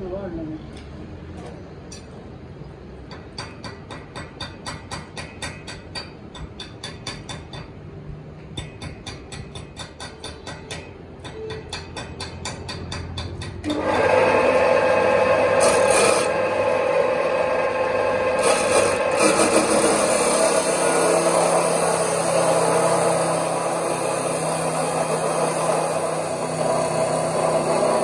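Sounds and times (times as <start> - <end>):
loud machine whining: 13.6 - 28.0
rasping strokes on metal: 15.5 - 16.4, 18.4 - 28.0.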